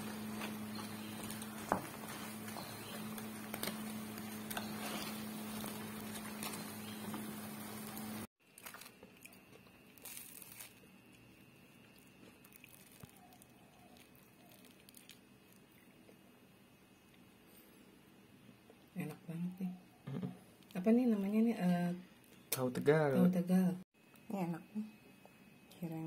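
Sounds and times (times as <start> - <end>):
oil sizzling in a pan: 1.5 - 8.3
hands tearing fried food: 8.5 - 10.9, 12.3 - 15.7.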